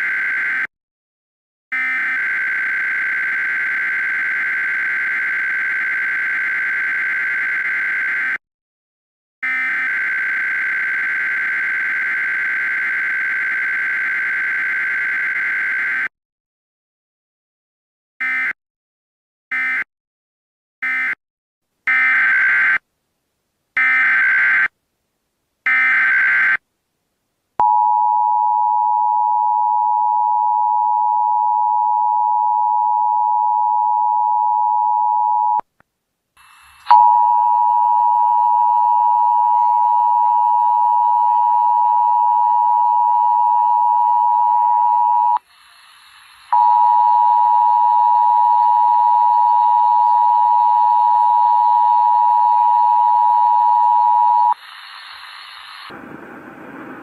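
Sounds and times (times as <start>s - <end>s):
hiss: 45.4s - 46.5s, 54.6s - 57.0s.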